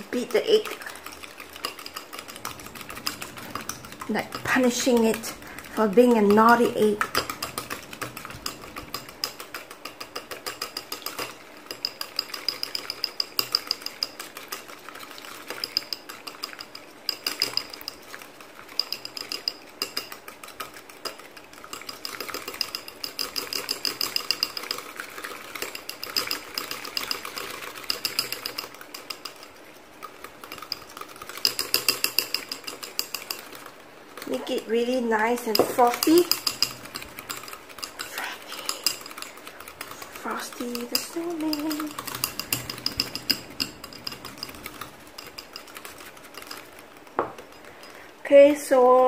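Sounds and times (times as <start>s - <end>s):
whisk beating egg in bowl: 0.0s - 49.0s.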